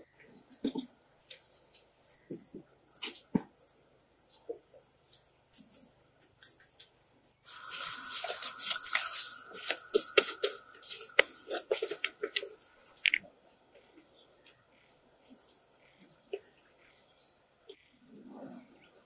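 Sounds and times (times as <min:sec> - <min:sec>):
water running and splashing: 0:07.5 - 0:13.2.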